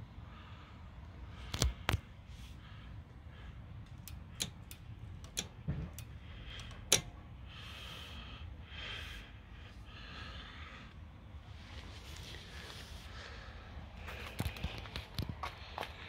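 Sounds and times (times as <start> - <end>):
clicks of hard parts handled: 3.8 - 7.2.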